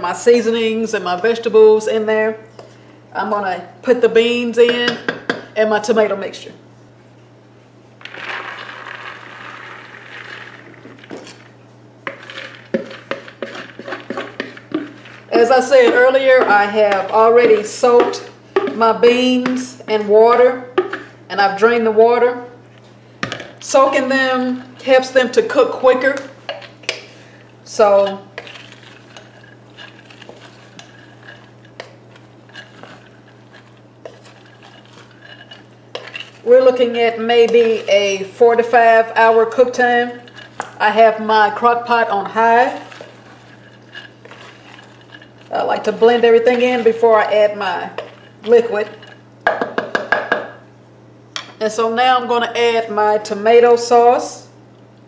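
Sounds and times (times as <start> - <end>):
steady low hum: 0.0 - 55.0
beans pouring with rattle: 8.0 - 11.5
wooden spoon scraping pot: 8.0 - 20.2, 23.7 - 50.3.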